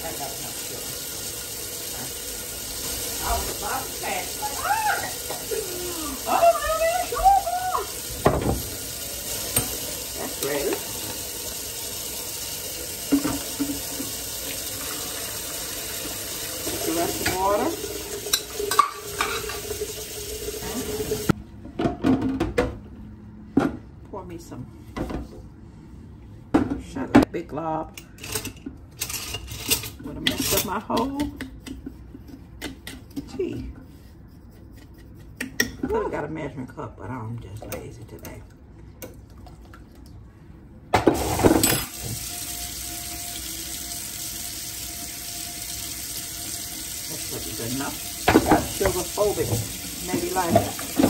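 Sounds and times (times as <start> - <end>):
tap water running into sink: 0.0 - 21.4, 41.0 - 51.0.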